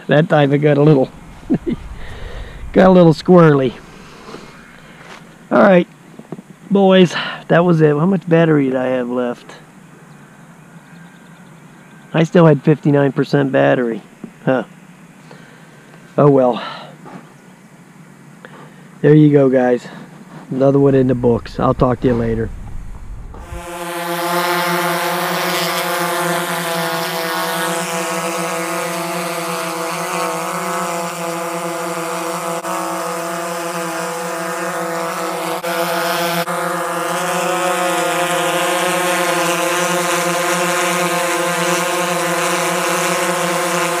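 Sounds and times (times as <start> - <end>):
drone propellers whining: 0.8 - 5.6, 20.7 - 24.2.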